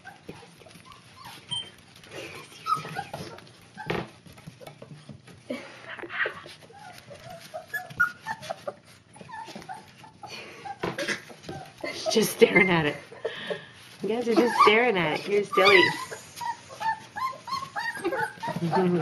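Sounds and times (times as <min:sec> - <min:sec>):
puppies whimpering and yipping: 0:00.0 - 0:05.5, 0:06.1 - 0:19.0
scuffling in wood shavings: 0:13.8 - 0:18.9.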